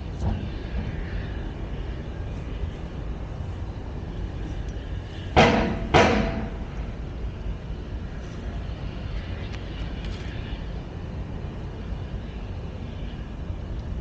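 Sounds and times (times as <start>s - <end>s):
low outdoor rumble: 0.0s - 14.0s
sharp knocks: 5.4s - 6.5s.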